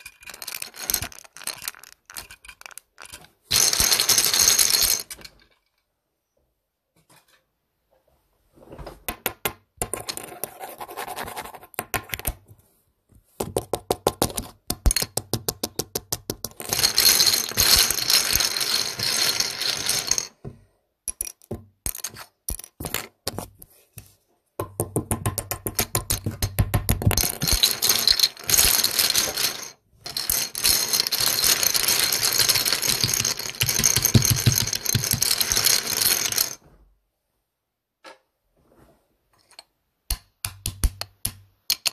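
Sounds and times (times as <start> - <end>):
plastic bricks clattering: 0.0 - 5.8, 14.1 - 20.4, 25.4 - 36.6.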